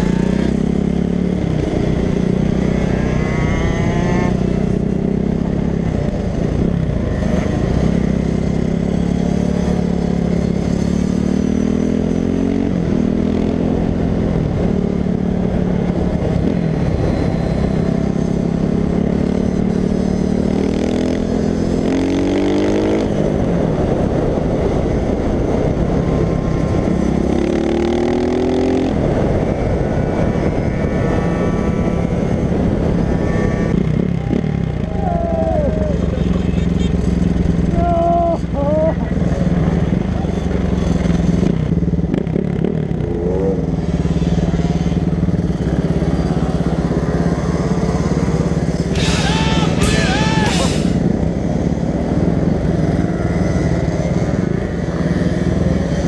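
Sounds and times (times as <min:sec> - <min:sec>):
dirt bike engine accelerating: 0:26.6 - 0:56.0.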